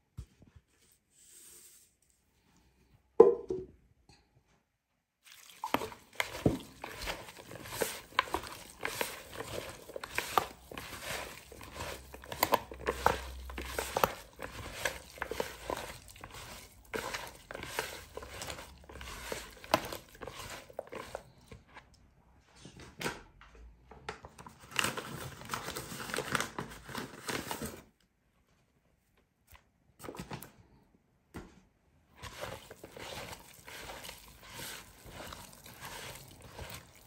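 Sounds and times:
hand squishing vegetable mixture: 5.2s - 22.0s, 32.1s - 37.0s.

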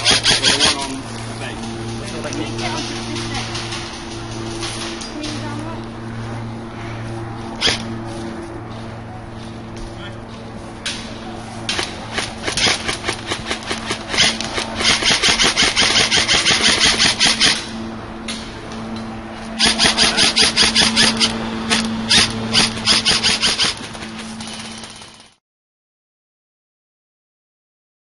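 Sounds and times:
airsoft rifle firing: 0.0s - 0.8s, 7.6s - 7.9s, 11.7s - 17.7s, 19.6s - 25.3s.

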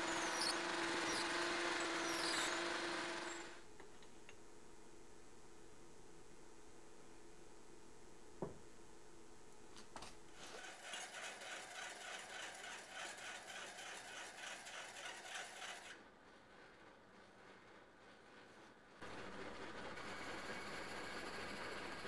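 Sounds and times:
drill bit scraping metal: 0.0s - 3.6s.

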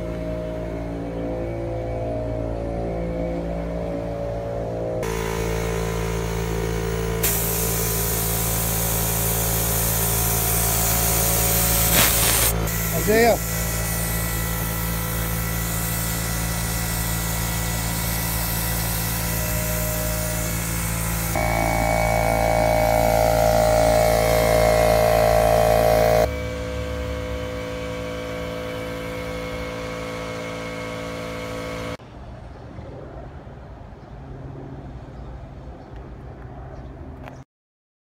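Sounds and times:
air compressor running: 4.8s - 32.0s.

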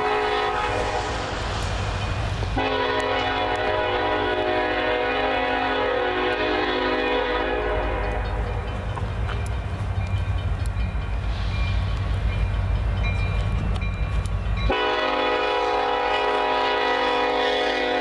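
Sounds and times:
locomotive air horn: 0.0s - 1.2s, 2.6s - 8.4s, 14.7s - 18.0s
train rumbling: 0.0s - 18.0s.

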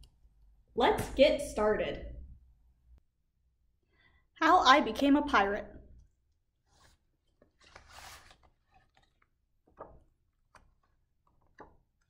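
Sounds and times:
book cover and pages swishing: 6.7s - 9.3s.

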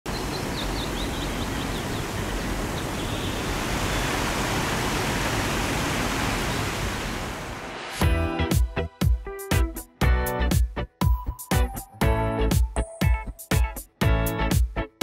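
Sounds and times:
bird chirping: 0.1s - 4.1s
waterfall rushing: 0.1s - 8.0s.

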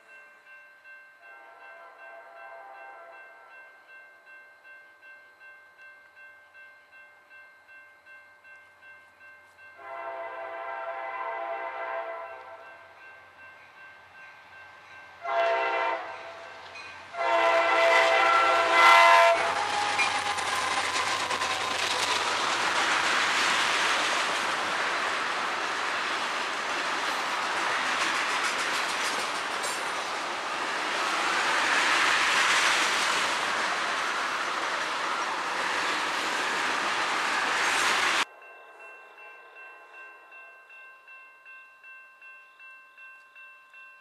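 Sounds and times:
train horn blasts: 1.2s - 3.6s, 9.8s - 12.9s, 15.2s - 20.5s
train rumbling over crossing: 9.7s - 43.9s
steel wheels rushing on rail: 9.8s - 38.3s.

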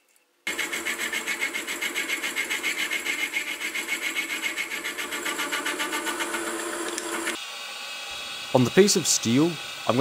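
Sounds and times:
mill motor running: 0.5s - 7.4s
saw cutting metal: 0.5s - 7.4s, 8.5s - 10.0s.

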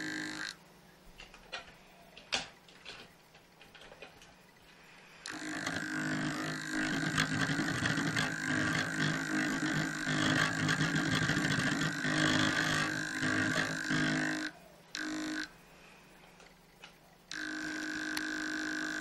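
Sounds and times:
model locomotive running: 5.2s - 15.5s.

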